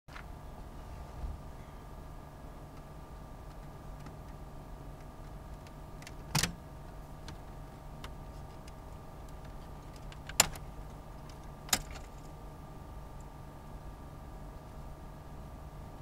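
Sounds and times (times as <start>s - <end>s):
faint hum: 0.1s - 16.0s
sharp plastic clicks: 7.2s - 12.2s.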